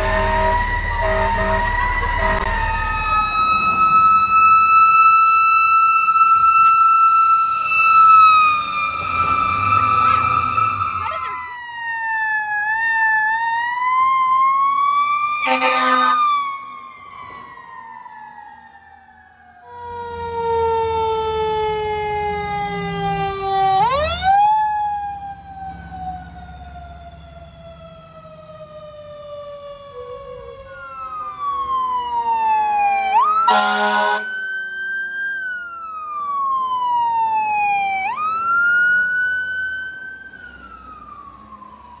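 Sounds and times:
loud horn blasts: 0.0s - 2.6s, 15.4s - 16.2s, 33.5s - 34.3s
heavy truck engine rumbling: 0.0s - 4.5s
fire truck sirens wailing: 0.0s - 42.0s.

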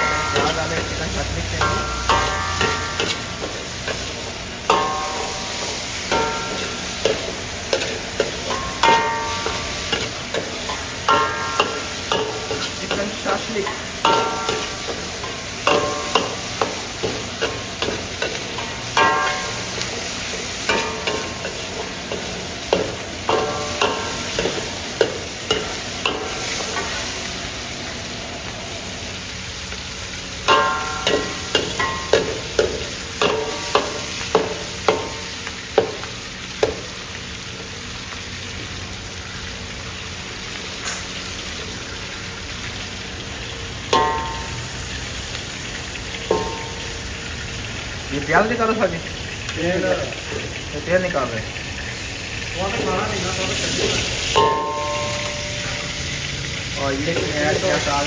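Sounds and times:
metal ladle scraping and knocking wok: 0.0s - 27.0s, 30.4s - 36.1s
food sizzling in oil: 0.0s - 58.0s.

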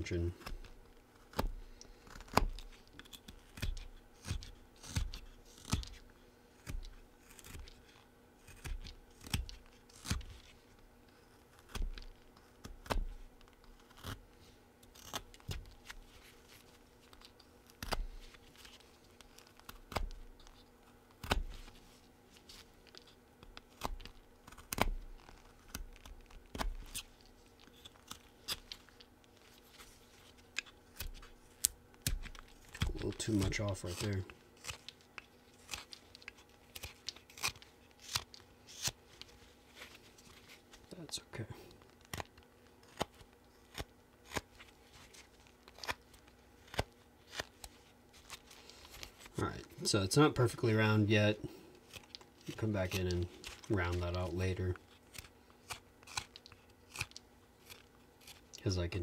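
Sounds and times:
knife cutting wood shavings: 1.2s - 6.0s, 30.6s - 34.9s, 50.7s - 59.0s.

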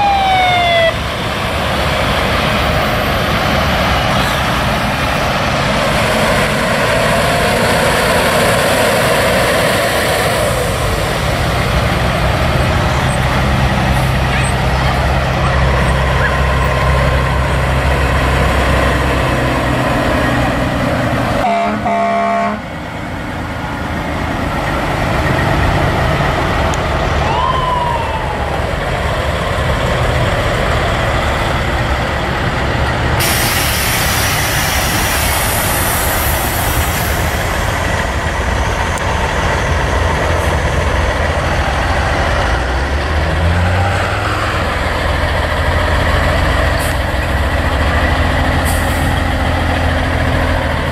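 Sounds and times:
diesel trucks driving past: 0.0s - 50.9s
truck horn blast: 21.4s - 22.7s
air hissing: 33.2s - 37.6s.

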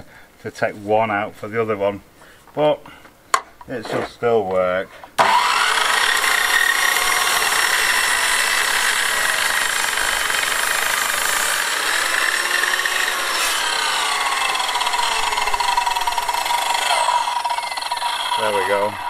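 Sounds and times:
mitre saw motor whine: 5.2s - 19.0s
saw blade rasping through wood: 5.2s - 19.0s.

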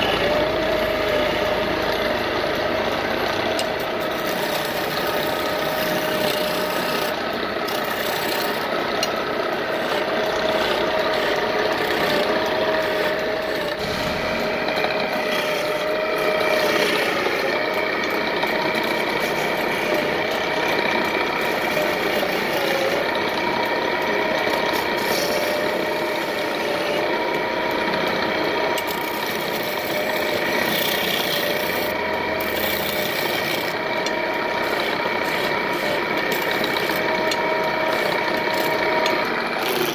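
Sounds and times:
chisel scraping turning wood: 3.5s - 9.2s, 9.8s - 23.5s, 24.3s - 27.0s, 28.8s - 39.9s.

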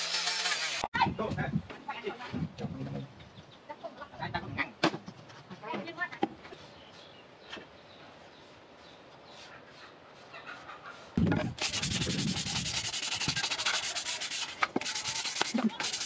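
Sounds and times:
sandpaper rubbing on wood: 11.2s - 16.0s.

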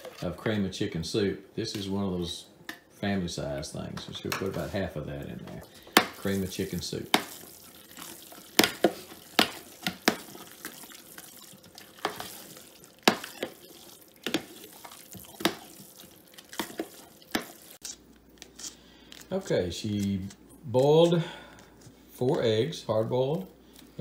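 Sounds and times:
fork stirring wet mixture: 4.2s - 19.3s.

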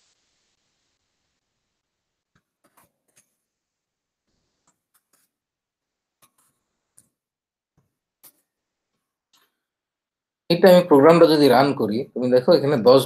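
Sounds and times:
faint keyboard typing: 2.3s - 3.4s, 4.5s - 5.4s, 6.2s - 7.2s, 7.8s - 9.6s.

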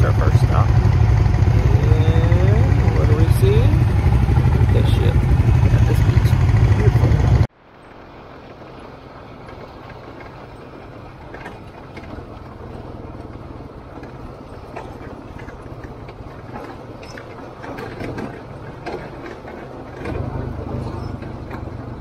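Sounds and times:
atvs idling: 0.0s - 7.5s
loud atv engine: 0.0s - 7.5s.

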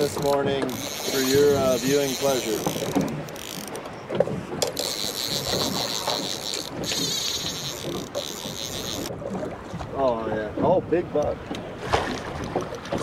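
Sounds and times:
fishing reel ratcheting clicks: 0.0s - 3.8s, 4.6s - 9.1s
wind noise: 0.0s - 9.9s.

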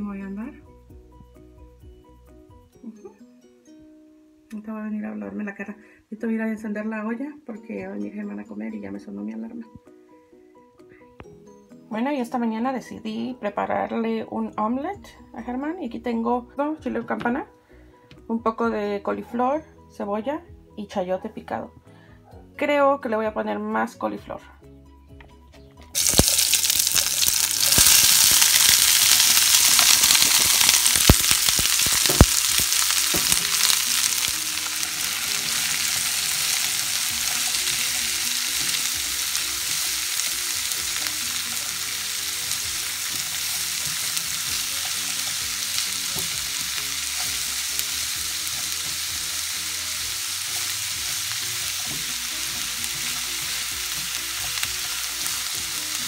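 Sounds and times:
vegetables sizzling in a skillet: 26.0s - 56.0s.

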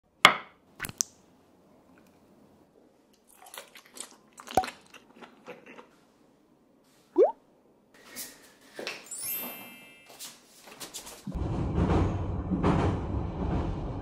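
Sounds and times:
chewing and crunching: 3.1s - 6.1s.

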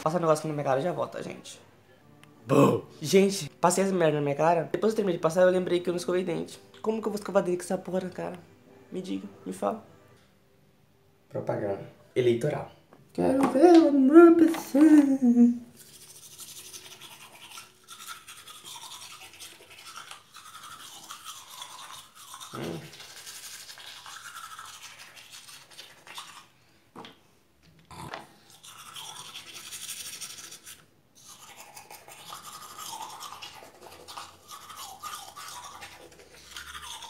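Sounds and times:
toothbrush scrubbing teeth: 15.7s - 26.6s, 28.0s - 37.0s.

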